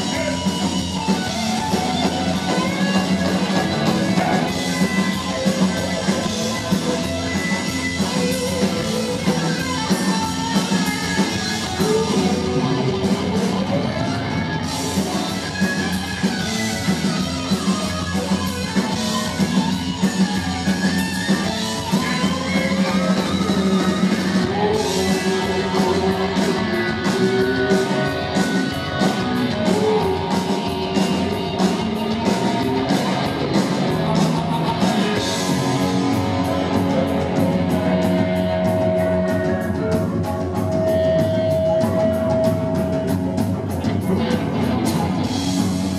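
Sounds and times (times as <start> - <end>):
punk rock band playing: 0.0 - 45.9
person singing: 11.2 - 14.4, 21.9 - 32.4.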